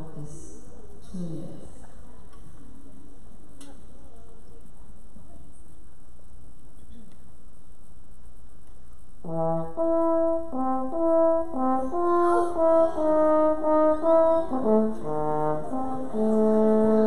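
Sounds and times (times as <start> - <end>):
french horn melody: 9.2 - 17.0.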